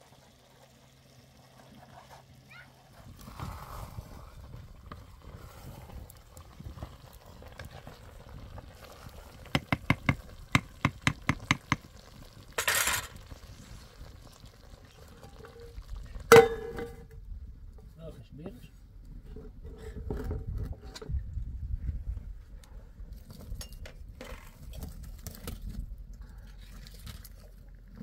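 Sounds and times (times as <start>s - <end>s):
wooden spoon knocking metal pot: 9.5s - 11.9s, 16.3s - 17.0s
metal pot lid clanging: 12.6s - 13.2s, 16.3s - 17.0s.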